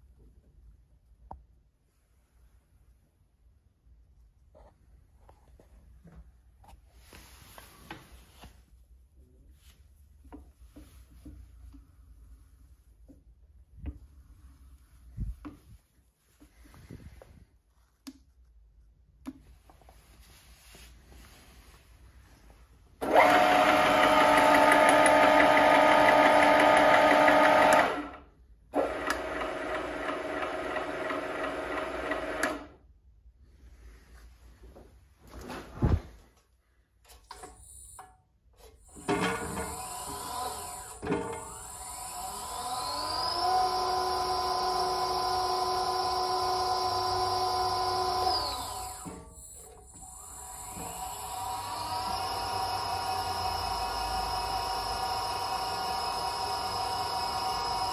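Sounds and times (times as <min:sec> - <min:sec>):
electric motor whine: 0:49.9 - 0:57.9.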